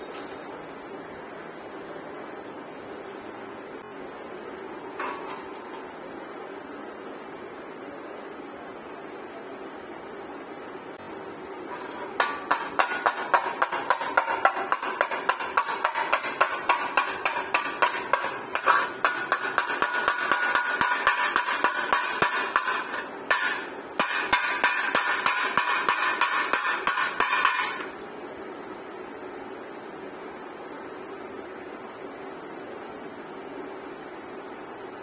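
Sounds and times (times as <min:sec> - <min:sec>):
chipping hammer striking metal: 0:11.8 - 0:27.9.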